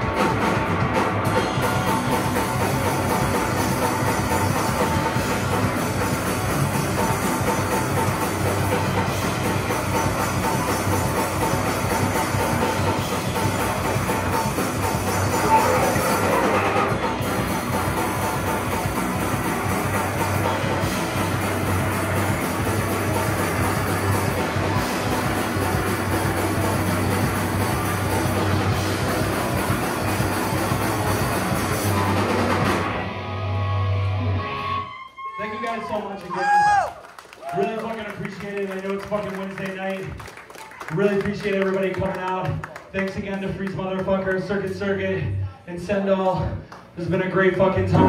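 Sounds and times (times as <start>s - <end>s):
drum kit: 0.0s - 34.8s, 46.3s - 48.0s
hardcore band playing live: 0.0s - 34.9s, 46.3s - 48.0s
distorted guitars: 0.0s - 35.0s, 47.5s - 48.0s.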